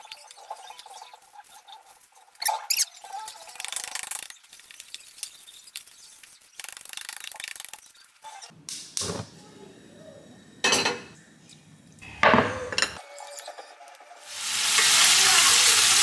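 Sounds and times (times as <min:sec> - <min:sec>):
paper towel and plastic glove rustling: 0:00.0 - 0:08.5
sharp crackles: 0:02.7 - 0:09.1.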